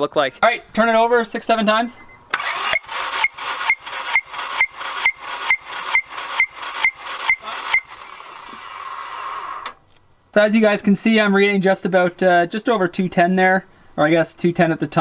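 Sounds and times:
starter motor cranking engine: 0:02.3 - 0:09.8.

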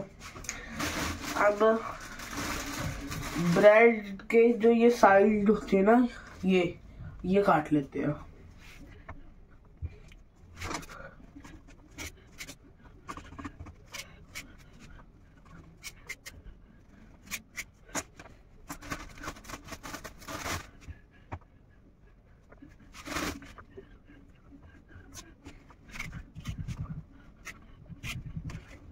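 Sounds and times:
knife scraping bread crusts: 0:11.6 - 0:16.4, 0:17.2 - 0:20.8.

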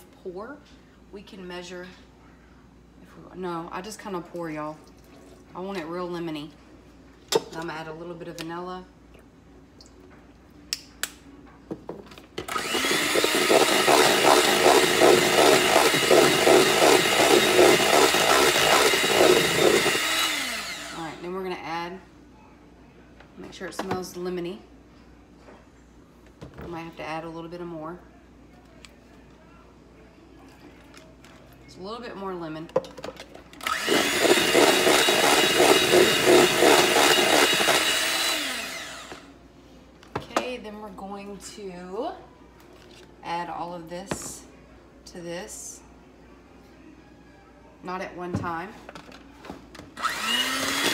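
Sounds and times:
electric hand mixer whirring: 0:12.5 - 0:21.1, 0:33.6 - 0:39.3, 0:50.0 - 0:50.9.

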